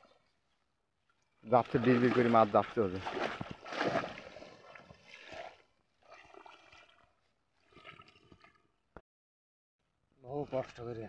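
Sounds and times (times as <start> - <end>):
water splashing: 1.2 - 8.6.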